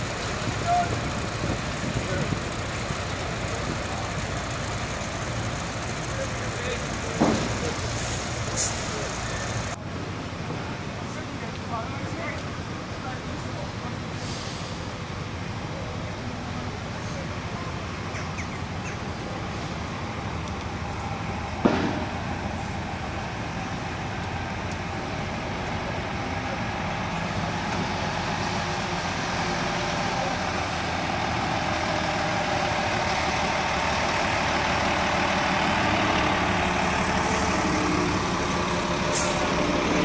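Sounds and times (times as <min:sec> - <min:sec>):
diesel lorry engine running: 0:00.0 - 0:40.0
short hiss: 0:07.9 - 0:09.1, 0:14.2 - 0:14.9
sharp knock: 0:21.6 - 0:22.1.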